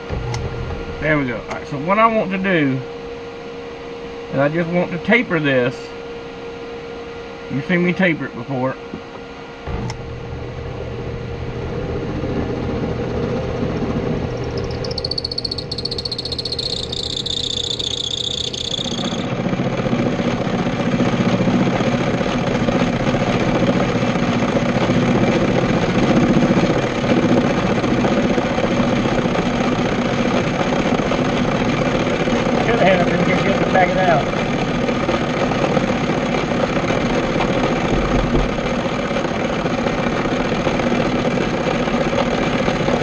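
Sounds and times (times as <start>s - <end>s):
high-pitched whine: 0.0s - 6.0s, 9.6s - 30.2s
bench lathe humming: 14.2s - 19.4s
lathe tool cutting workpiece: 15.5s - 19.3s.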